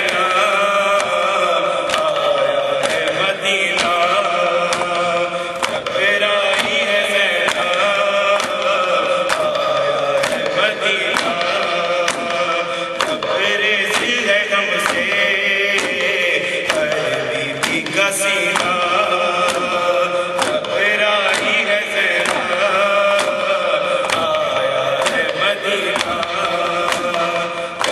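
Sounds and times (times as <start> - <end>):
man chanting through microphone: 0.0 - 27.9
hands slapping chest: 4.6 - 11.4, 17.6 - 20.7, 21.3 - 22.6, 23.2 - 27.9.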